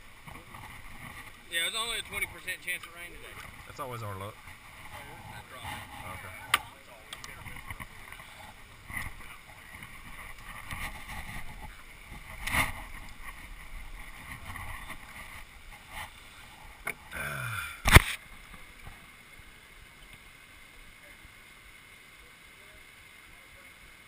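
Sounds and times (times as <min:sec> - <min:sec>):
camera rubbing against clothing: 0:00.2 - 0:06.5, 0:07.2 - 0:16.8.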